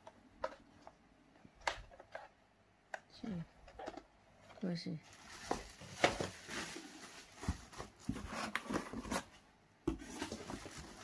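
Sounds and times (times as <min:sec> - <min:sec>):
plastic bags crinkling: 0:05.0 - 0:08.2.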